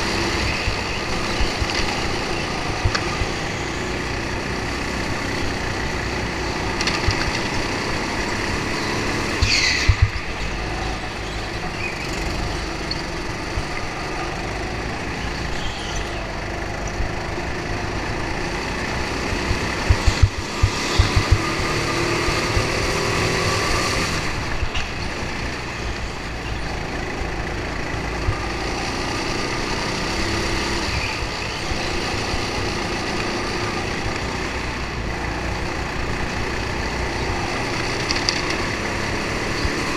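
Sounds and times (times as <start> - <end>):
go-kart engine drone: 0.0 - 39.9
sharp knocks and thumps: 19.4 - 22.9.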